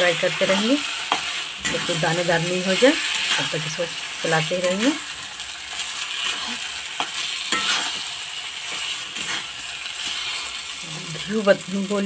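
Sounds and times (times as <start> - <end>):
food sizzling in a pan: 0.0 - 12.0
spatula scraping a metal pan: 0.4 - 3.6, 4.6 - 10.6.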